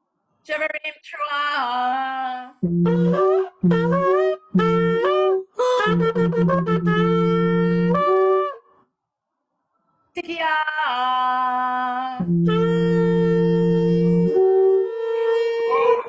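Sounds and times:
shofars blowing long blasts: 2.6s - 8.7s, 12.2s - 16.0s.

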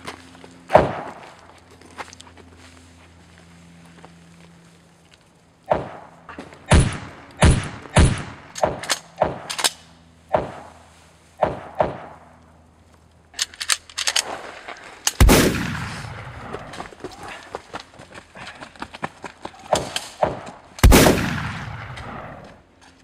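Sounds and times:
gunshots with echo: 15.2s - 16.7s, 20.8s - 22.4s.

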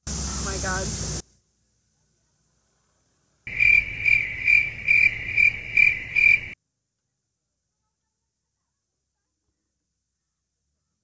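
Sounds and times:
cricket chirping: 3.5s - 6.6s.

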